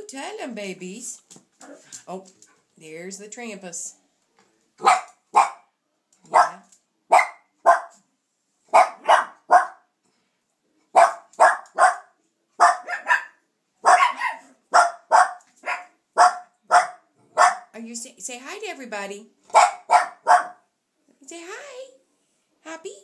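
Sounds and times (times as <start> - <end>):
small dogs barking: 4.8 - 5.7, 6.3 - 8.0, 8.7 - 9.9, 10.9 - 17.7, 19.5 - 20.7.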